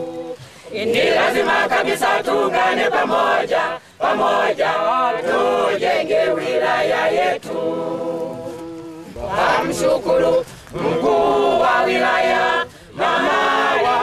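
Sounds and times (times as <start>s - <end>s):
group singing unaccompanied: 0.0s - 14.0s.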